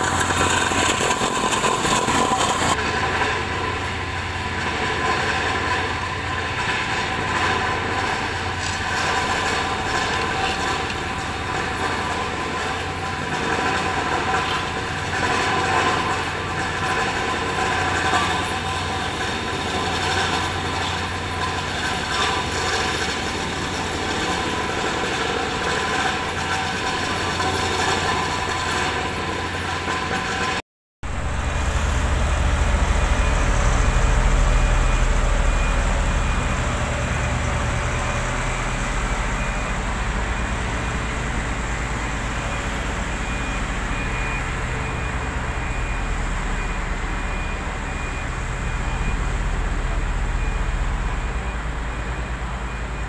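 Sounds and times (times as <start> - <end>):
raking asphalt: 0.0 - 53.0
road roller diesel engine rumbling: 0.0 - 53.0
machinery with held tones: 8.2 - 53.0.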